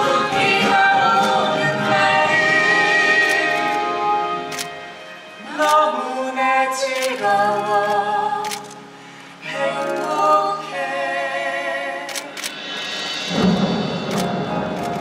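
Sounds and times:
person singing show tune: 0.0 - 4.6, 5.5 - 8.8, 9.4 - 12.5.

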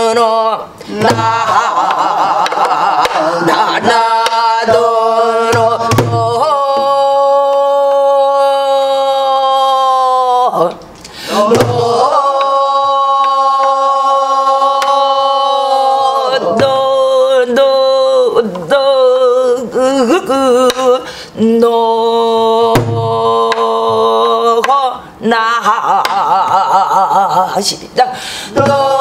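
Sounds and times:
singer breathing: 11.0 - 11.4, 21.0 - 21.4, 28.1 - 28.6.

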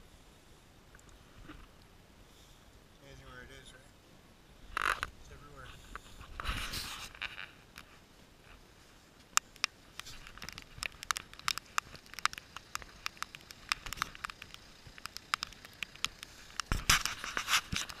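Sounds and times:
handling crackling clicks: 9.2 - 18.0.

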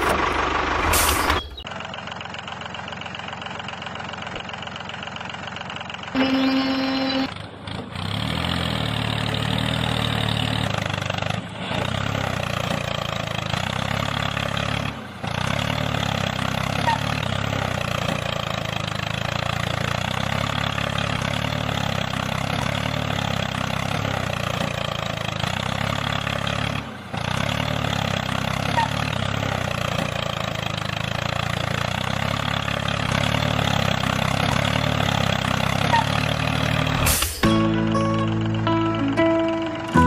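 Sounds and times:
diesel tractor engine chugging: 0.0 - 40.0
short steady tone: 6.2 - 7.3.

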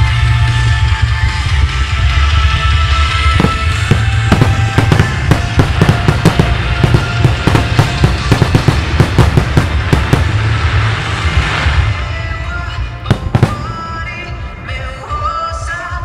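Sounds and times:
loud background music: 0.0 - 16.0
fireworks bursting: 3.1 - 14.8.

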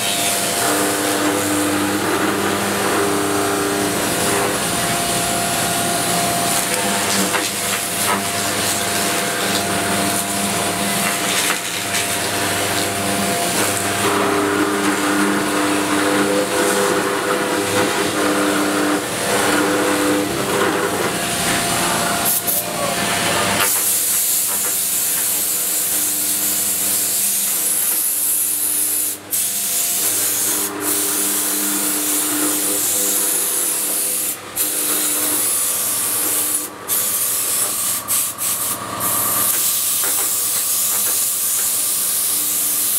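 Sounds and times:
spindle and motors humming: 0.0 - 38.1
milling cutter hissing through wood: 23.6 - 42.9.

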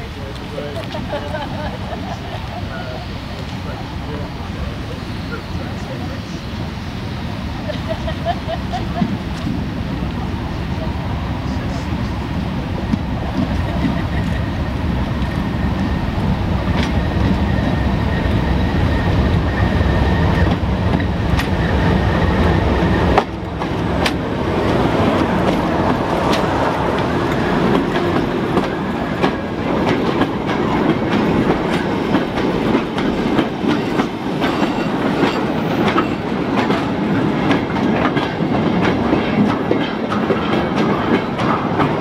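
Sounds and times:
train rumbling on rails: 0.0 - 42.0
sharp rail clicks: 12.8 - 17.5, 18.1 - 22.0, 22.8 - 42.0.

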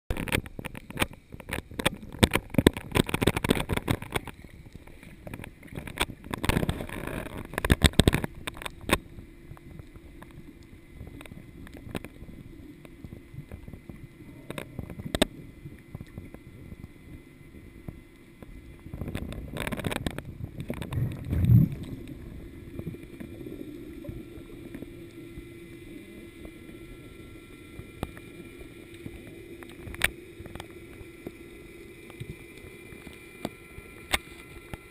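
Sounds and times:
low underwater hum: 0.1 - 34.9
underwater clicks and crackles: 0.1 - 34.9
bubbles gurgling: 19.0 - 26.6
deep whoosh of bubbles: 20.2 - 26.1.

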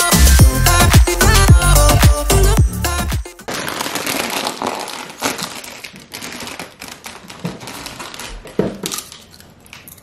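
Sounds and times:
chip bag crinkling: 3.4 - 10.0.

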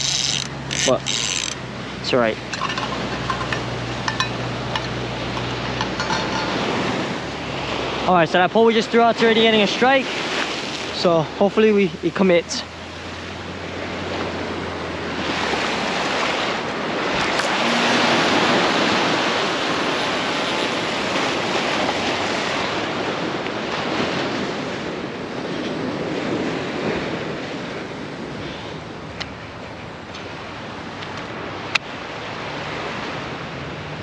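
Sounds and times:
ocean surf washing on shore: 0.0 - 34.0
wind buffeting microphone: 13.0 - 32.2.

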